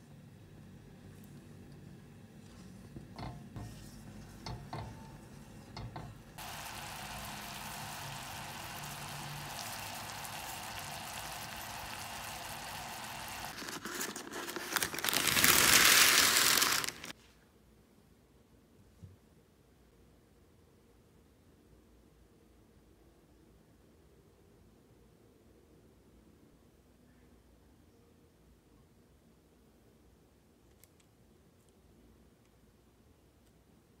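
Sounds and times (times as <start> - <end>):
syrup boiling in pot: 3.2 - 13.7, 15.2 - 17.1.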